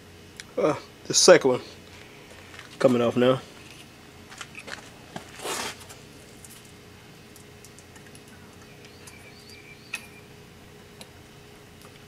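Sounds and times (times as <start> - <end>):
tool scraping: 4.6 - 6.0.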